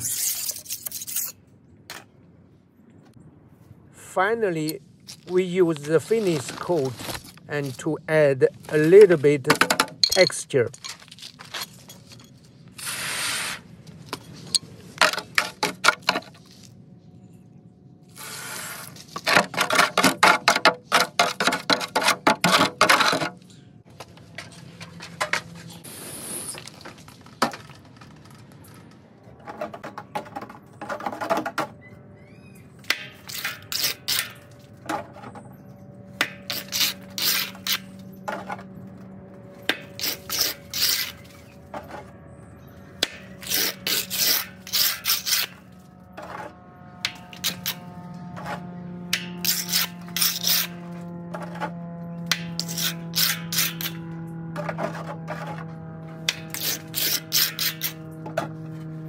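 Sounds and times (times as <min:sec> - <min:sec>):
hand tool scraping stucco: 0:00.0 - 0:01.4, 0:04.5 - 0:12.2, 0:18.2 - 0:23.4, 0:32.9 - 0:35.5, 0:36.2 - 0:38.6, 0:39.7 - 0:42.1, 0:43.0 - 0:48.7, 0:49.4 - 0:59.0.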